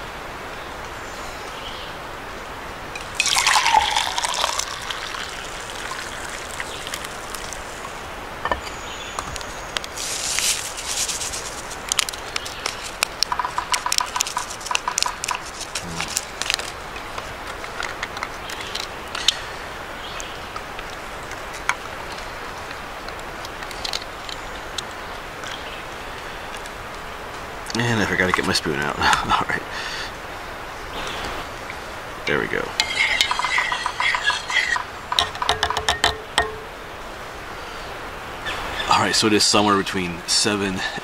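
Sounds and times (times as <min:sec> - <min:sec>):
water splashing and trickling: 0:02.9 - 0:08.1, 0:31.5 - 0:36.7.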